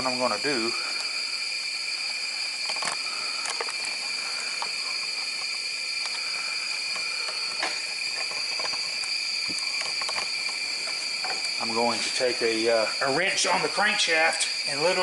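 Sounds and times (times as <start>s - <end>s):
air hissing with high whistle: 0.0s - 15.0s
faint clicks: 2.6s - 11.4s.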